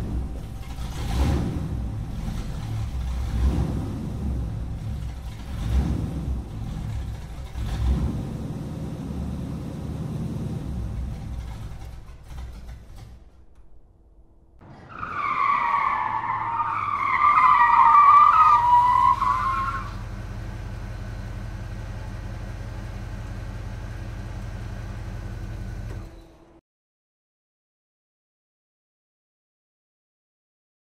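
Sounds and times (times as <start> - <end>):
car engine rumble: 0.0 - 26.6
tyres squealing: 14.6 - 20.0.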